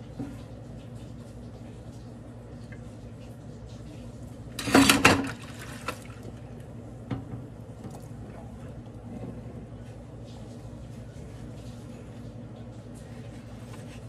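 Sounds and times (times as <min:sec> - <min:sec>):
water splash in sink: 0:04.5 - 0:06.4.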